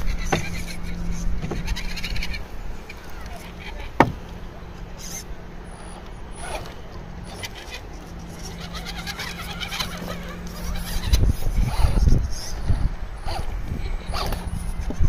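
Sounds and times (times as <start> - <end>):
small electric motor whirring: 5.0 - 15.0.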